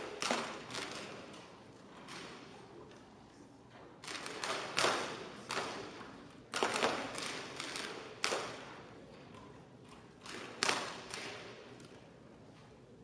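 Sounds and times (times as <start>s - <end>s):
bb gun shots echoing: 0.0s - 1.3s, 4.0s - 8.9s.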